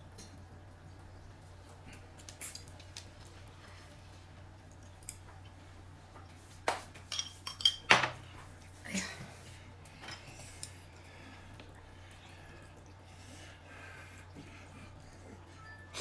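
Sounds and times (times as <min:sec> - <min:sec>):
utensils clinking against dishes: 0:07.1 - 0:08.2.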